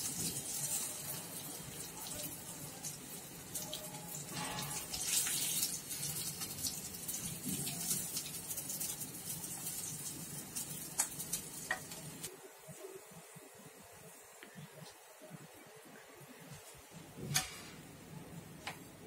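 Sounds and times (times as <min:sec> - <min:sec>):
oil sizzling in a frying pan: 0:00.0 - 0:12.3
metal spatula scraping: 0:04.3 - 0:05.7.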